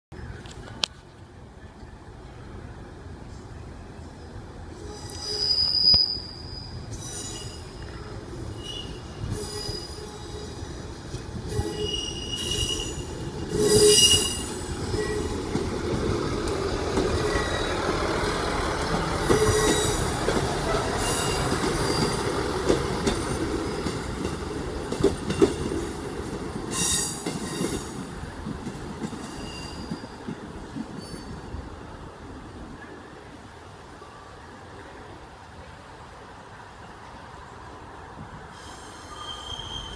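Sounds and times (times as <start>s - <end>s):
diesel train engines: 0.2s - 39.9s
wheels rumbling on rail: 0.2s - 39.9s
high wheel squeals: 4.8s - 15.6s, 17.1s - 17.8s, 19.2s - 22.4s, 29.2s - 30.2s, 38.5s - 39.9s.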